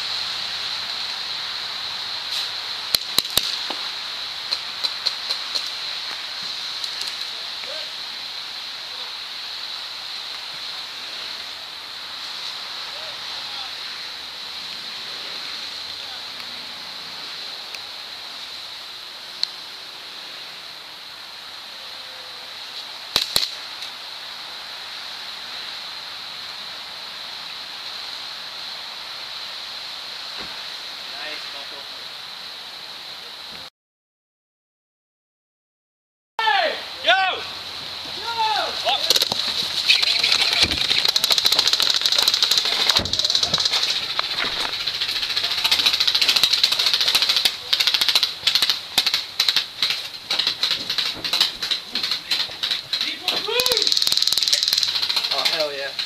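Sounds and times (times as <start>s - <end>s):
steady hiss: 0.0s - 33.7s, 36.4s - 56.0s
airsoft gunfire snaps: 2.9s - 3.8s, 23.1s - 23.6s, 39.0s - 39.5s.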